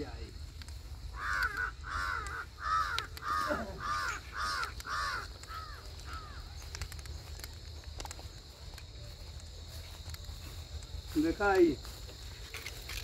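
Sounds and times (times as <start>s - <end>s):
crow cawing: 1.1s - 6.5s.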